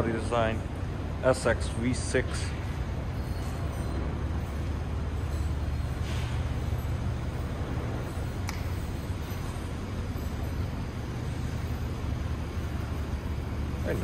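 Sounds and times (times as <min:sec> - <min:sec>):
sharp click: 0:08.4 - 0:08.8.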